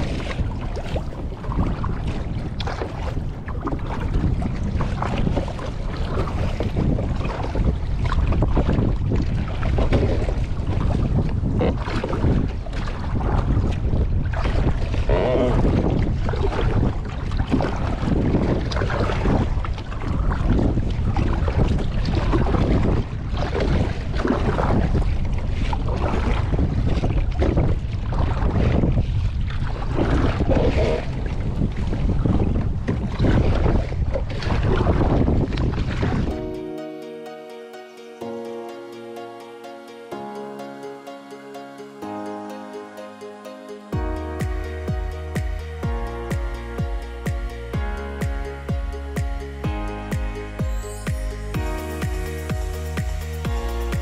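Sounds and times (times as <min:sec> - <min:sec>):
wind buffeting microphone: 0:00.0 - 0:36.6
paddle splashing in choppy water: 0:00.0 - 0:37.0, 0:43.8 - 0:54.0.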